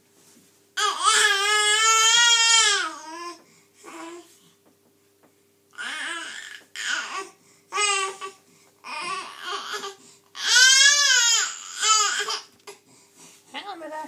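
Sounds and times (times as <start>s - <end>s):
baby babbling and crying: 0.8s - 4.3s, 5.8s - 12.5s.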